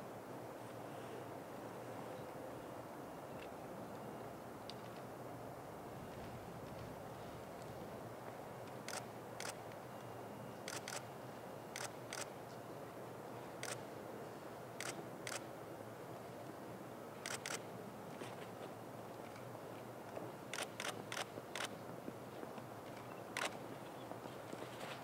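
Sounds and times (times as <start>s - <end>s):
camera shutters clicking: 10.7s - 11.0s, 17.3s - 17.6s, 20.5s - 21.7s, 23.0s - 23.6s.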